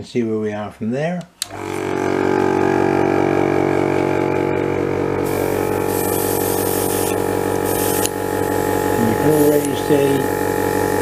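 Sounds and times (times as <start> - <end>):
airbrush compressor humming: 1.5 - 11.0
airbrush spraying hiss: 5.2 - 10.4.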